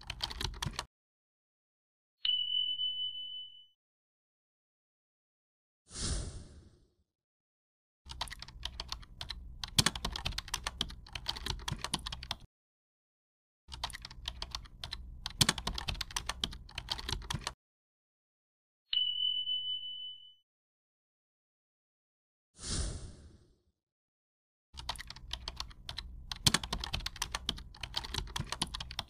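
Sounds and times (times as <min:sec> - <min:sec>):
rapid keyboard key clicks: 0:00.0 - 0:00.9, 0:08.1 - 0:12.5, 0:13.7 - 0:17.6, 0:24.8 - 0:29.0.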